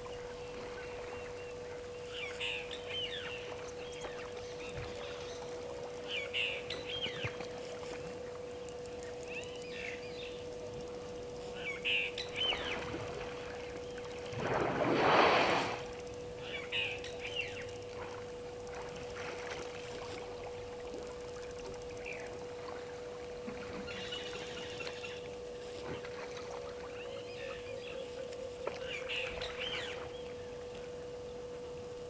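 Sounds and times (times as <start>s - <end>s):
steady hum: 0.0s - 32.0s
water splashing: 12.6s - 16.0s.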